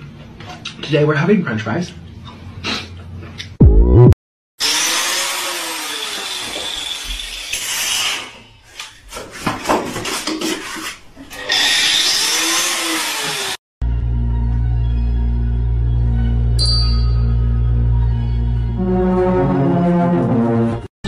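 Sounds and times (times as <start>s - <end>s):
power drill whining: 4.6s - 8.4s, 11.3s - 13.6s.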